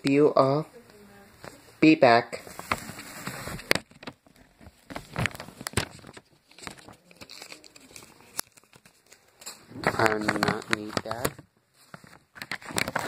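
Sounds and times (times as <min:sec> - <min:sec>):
packaging tearing and crinkling: 0:02.5 - 0:11.4, 0:12.0 - 0:13.0.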